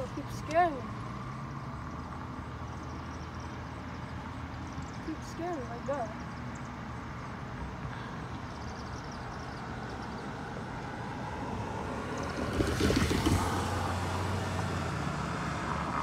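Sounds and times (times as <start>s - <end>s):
background traffic noise: 0.0s - 16.0s
car driving past: 6.2s - 16.0s.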